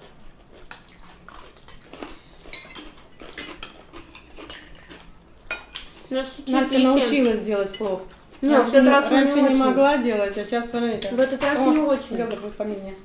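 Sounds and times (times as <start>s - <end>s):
cutlery clinking on plates: 1.6s - 5.9s.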